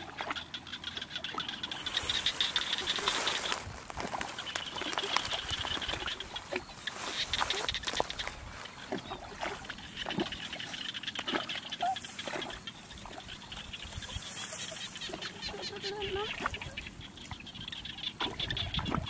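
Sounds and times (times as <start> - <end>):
water splashing and dripping: 0.0 - 14.1.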